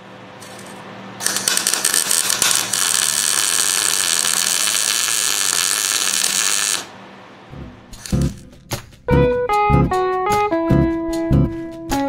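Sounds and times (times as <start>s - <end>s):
welder arc crackling and hissing: 0.4s - 7.0s, 8.0s - 8.4s.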